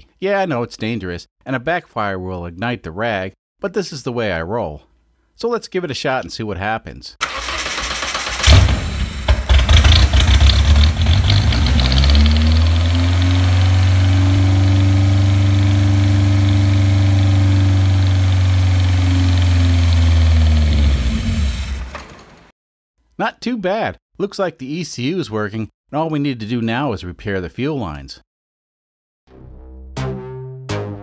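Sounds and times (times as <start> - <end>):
engine starter cranking: 7.2 - 13.5, 17.7 - 22.5
car engine idling: 7.3 - 22.0.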